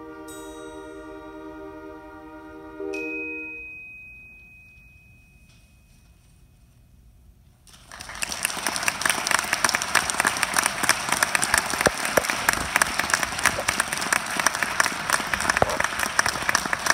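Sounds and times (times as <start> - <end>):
audience applauding: 7.7 - 16.9.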